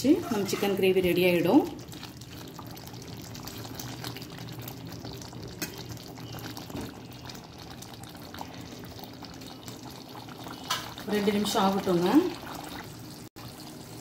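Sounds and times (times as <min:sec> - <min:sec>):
spatula stirring: 0:00.0 - 0:04.6
thick gravy simmering and bubbling: 0:00.2 - 0:14.0.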